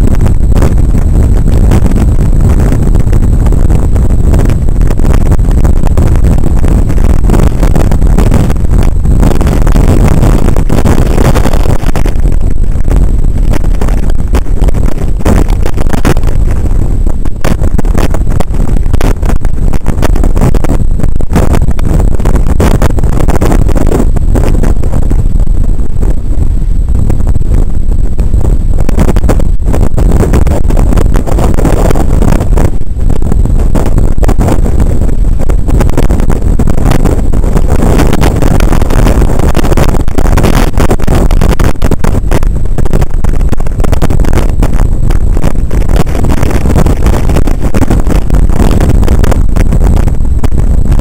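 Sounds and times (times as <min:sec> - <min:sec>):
wind buffeting microphone: 0:00.0 - 0:51.0.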